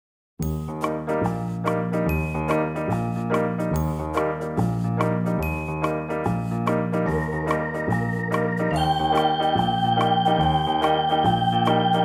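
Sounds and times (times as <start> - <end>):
children's background music: 5.0 - 12.0.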